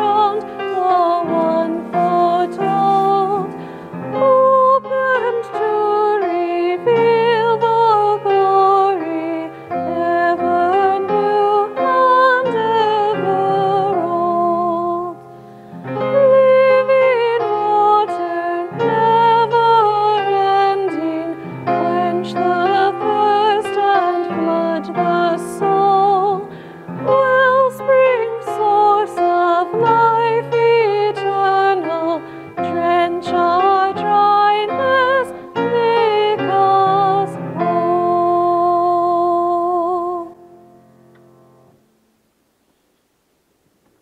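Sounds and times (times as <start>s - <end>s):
woman singing: 0.0s - 15.3s, 16.0s - 40.5s
grand piano: 0.0s - 42.3s.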